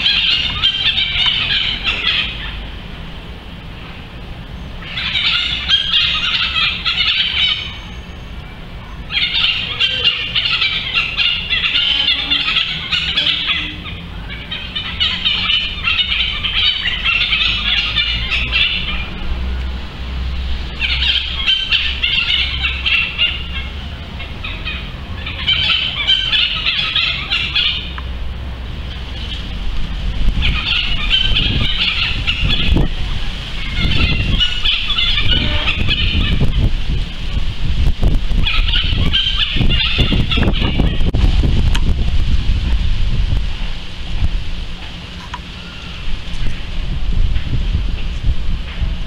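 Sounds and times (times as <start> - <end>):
owl raspy calls: 0.0 - 2.7, 4.8 - 8.2, 9.1 - 19.2, 20.7 - 28.0, 30.4 - 36.7, 38.4 - 41.1
low steady rumble: 0.0 - 49.0.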